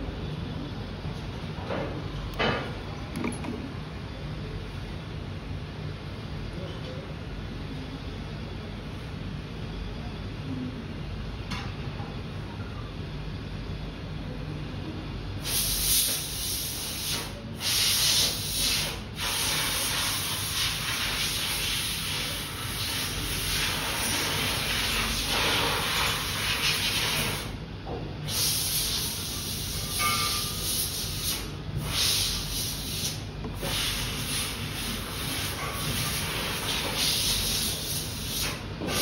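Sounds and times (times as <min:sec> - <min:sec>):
heat gun blowing hiss: 0:15.4 - 0:24.4.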